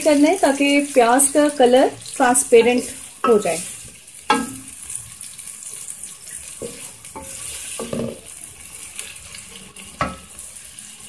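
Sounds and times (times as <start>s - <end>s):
onions sizzling in hot oil: 0.0s - 11.0s
wooden spoon knocking on a pot: 3.2s - 3.7s, 4.3s - 4.8s, 6.6s - 8.2s, 10.0s - 10.3s.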